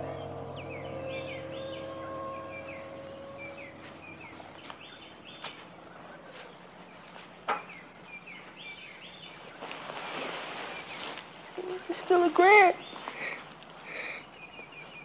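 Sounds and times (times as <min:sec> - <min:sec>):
held music chord: 0:00.0 - 0:06.3
birds chirping: 0:00.0 - 0:09.9, 0:10.5 - 0:15.0.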